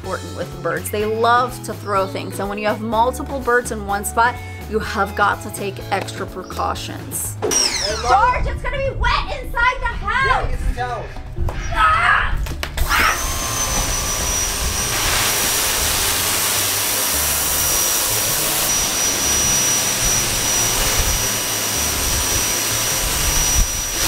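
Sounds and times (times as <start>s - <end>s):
pressure washer spraying: 12.8s - 24.0s.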